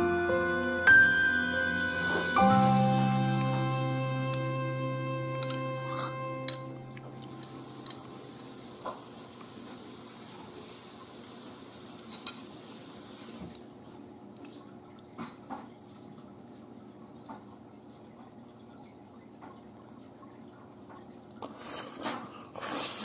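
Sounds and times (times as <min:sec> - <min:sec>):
soft liquid sounds: 0:05.3 - 0:23.0
spoon clinking against ceramic bowl: 0:05.4 - 0:06.8.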